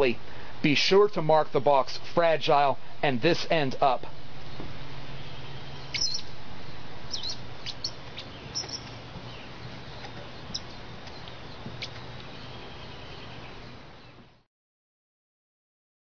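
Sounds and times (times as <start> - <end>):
low hum: 2.8 - 14.4.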